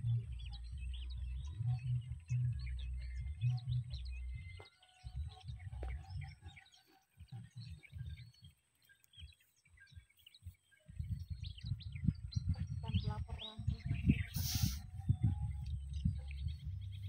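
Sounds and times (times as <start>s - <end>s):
small birds chirping: 0.0s - 17.0s
low rumble: 11.3s - 17.0s.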